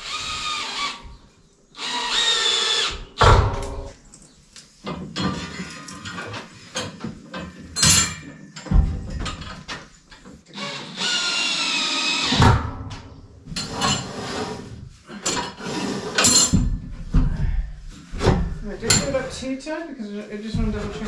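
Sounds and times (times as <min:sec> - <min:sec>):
steel scaffolding knocks and clanks: 0:04.8 - 0:10.2, 0:16.2 - 0:17.6.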